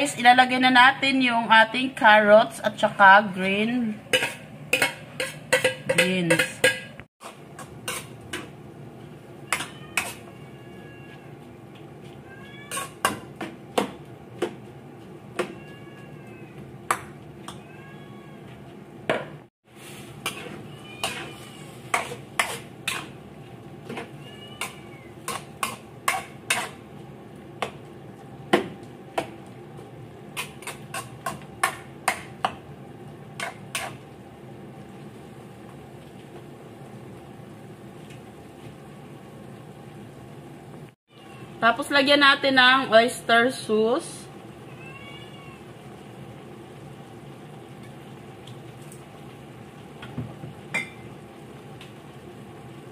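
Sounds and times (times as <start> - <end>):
metal spatula scraping a wok: 4.1 - 8.2, 9.5 - 10.3, 12.7 - 13.2, 19.7 - 23.2, 24.6 - 26.8, 33.4 - 34.0
low simmer: 19.7 - 41.6, 45.4 - 52.9.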